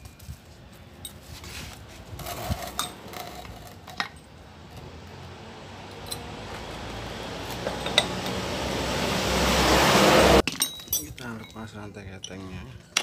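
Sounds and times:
metal parts and tools clinking: 2.1 - 4.9, 7.6 - 8.4, 10.4 - 13.0.

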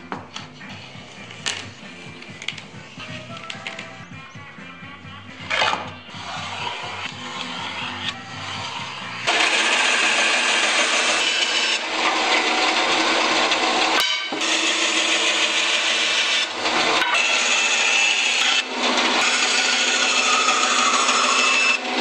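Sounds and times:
bandsaw cutting wood: 5.5 - 22.0.

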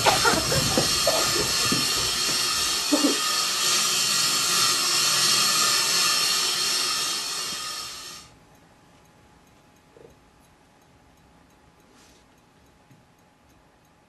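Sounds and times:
steady hissing noise: 0.0 - 8.4.

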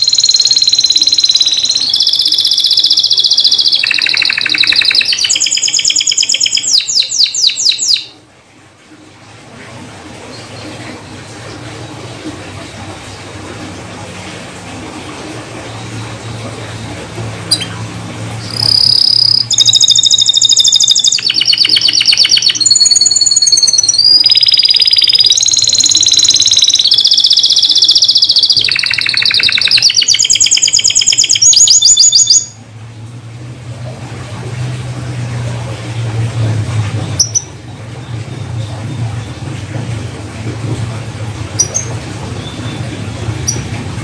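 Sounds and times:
canary singing trills: 0.0 - 8.2, 15.8 - 32.6
low steady hum: 0.0 - 44.0.

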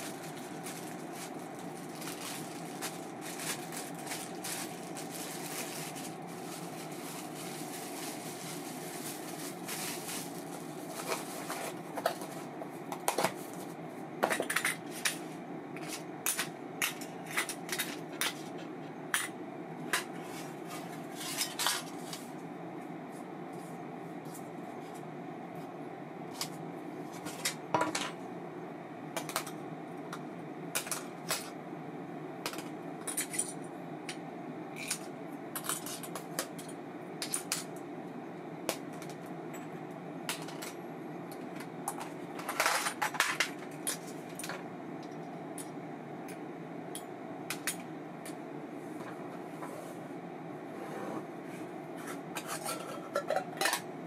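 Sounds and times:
steady hum: 0.0 - 54.0.

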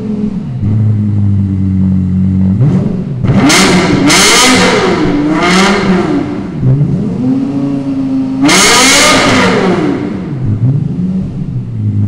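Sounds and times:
car engine idling and revving: 0.0 - 12.0.

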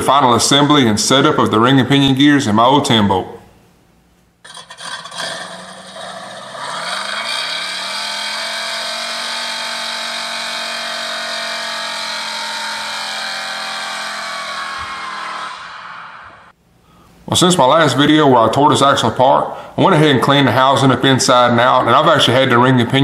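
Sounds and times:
engine revving up: 4.5 - 16.5.

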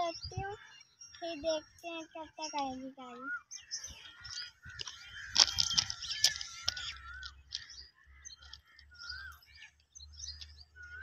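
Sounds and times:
birds chirping: 0.0 - 11.0
footsteps on gravel: 3.9 - 9.3.

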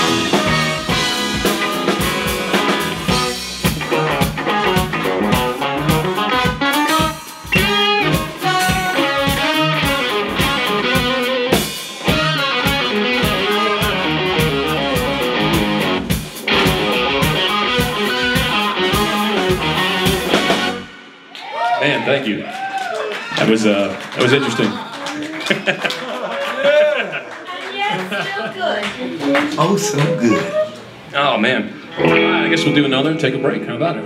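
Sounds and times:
electric bass: 0.0 - 21.0
drum kit: 0.0 - 21.2
electric guitar: 0.0 - 21.3, 31.9 - 34.0.

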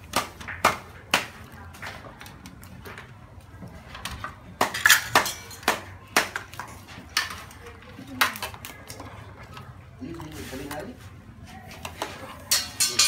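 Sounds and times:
metal ladle clinking on pot: 12.4 - 13.0.

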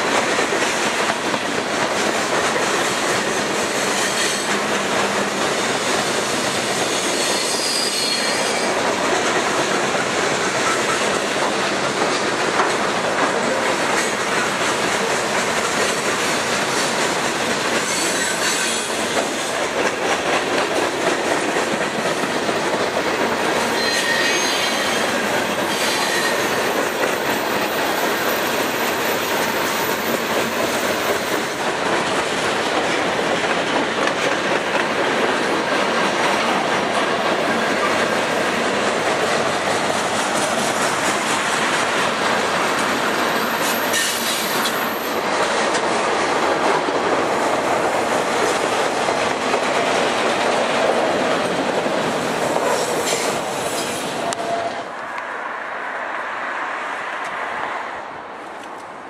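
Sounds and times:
freight train wheels rumbling on rails: 0.0 - 59.0.

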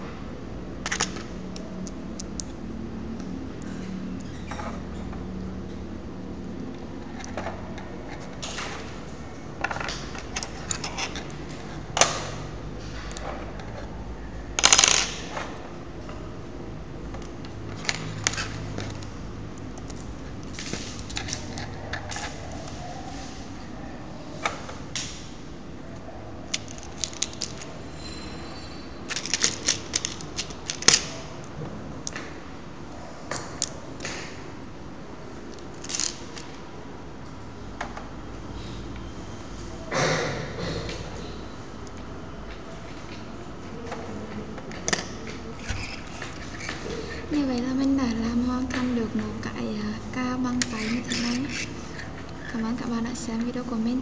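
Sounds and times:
plastic parts clicking: 26.5 - 27.7, 29.1 - 31.1.

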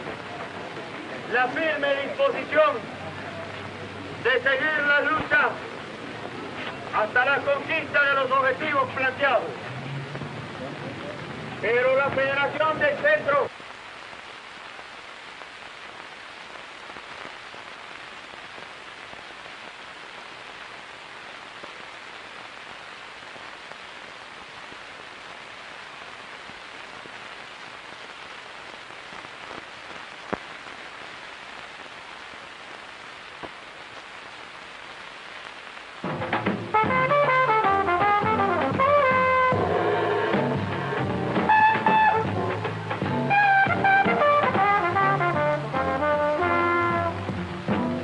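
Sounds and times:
film soundtrack hiss: 0.0 - 48.0
brass music: 36.0 - 48.0.

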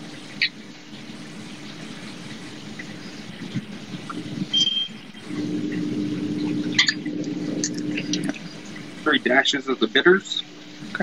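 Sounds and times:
vehicle engine hum: 3.6 - 11.0.

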